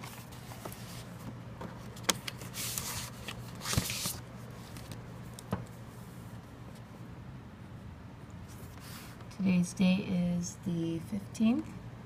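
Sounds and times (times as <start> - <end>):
paper rustling and sliding: 0.0 - 5.0.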